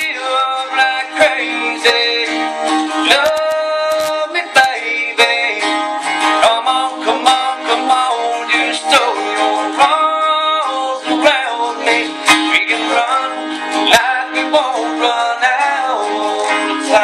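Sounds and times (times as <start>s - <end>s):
acoustic guitars playing country: 0.0s - 17.0s
man singing: 0.0s - 17.0s.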